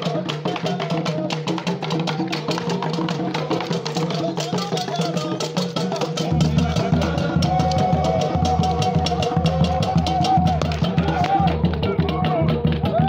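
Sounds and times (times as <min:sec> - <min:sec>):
fast dense drumming: 0:00.0 - 0:13.0
deep bass beat: 0:06.2 - 0:13.0.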